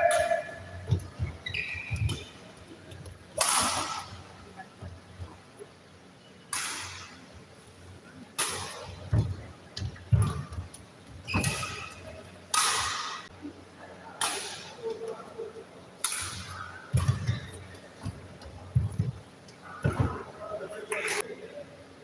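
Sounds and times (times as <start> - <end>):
footfalls on court floor: 0.2 - 3.2, 8.8 - 11.9, 16.9 - 20.3
shoe squeaks on court floor: 1.2 - 2.4, 11.2 - 12.1
racket striking shuttlecock: 3.4 - 4.2, 6.5 - 7.2, 8.4 - 9.2, 11.3 - 13.3, 16.0 - 17.4.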